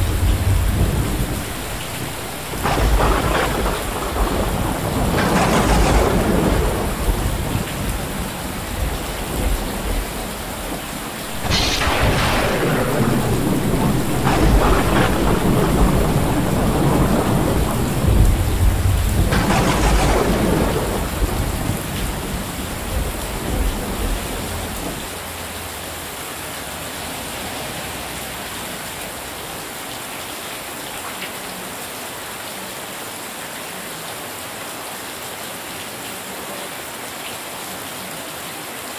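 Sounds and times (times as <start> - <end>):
rolling thunder: 0.0 - 25.1
heavy rain pouring: 0.0 - 38.9.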